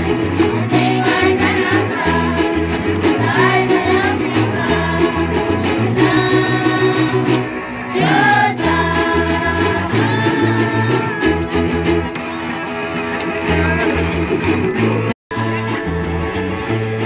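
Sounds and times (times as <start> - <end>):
low bass line: 0.0 - 17.0
strummed small guitars: 0.0 - 17.0
girls singing in unison: 0.6 - 11.1.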